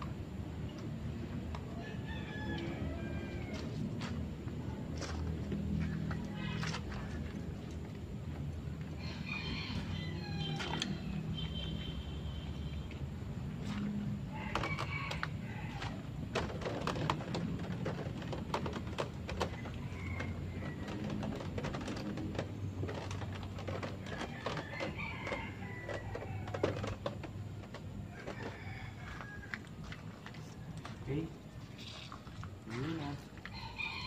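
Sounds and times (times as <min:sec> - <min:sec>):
roosters crowing: 0:01.7 - 0:04.2, 0:08.8 - 0:11.3, 0:13.9 - 0:30.8, 0:33.4 - 0:34.0.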